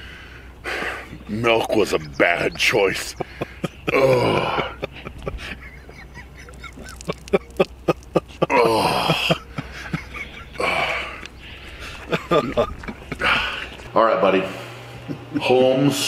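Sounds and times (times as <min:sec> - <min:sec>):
loud vocal sounds: 0:03.8 - 0:04.9, 0:08.4 - 0:09.4
man gulping milk: 0:06.2 - 0:13.9.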